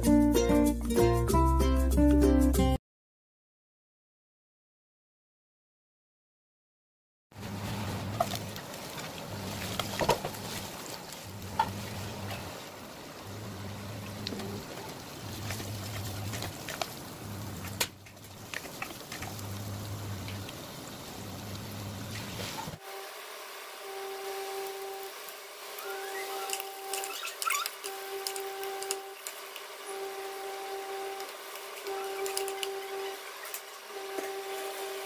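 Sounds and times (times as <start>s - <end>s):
carrots sizzling in oil: 7.4s - 35.0s.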